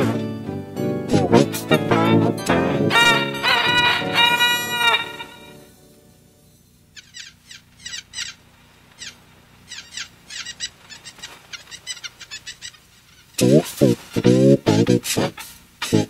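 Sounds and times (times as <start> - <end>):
small birds chirping: 6.5 - 14.4
loud voice: 13.4 - 16.0.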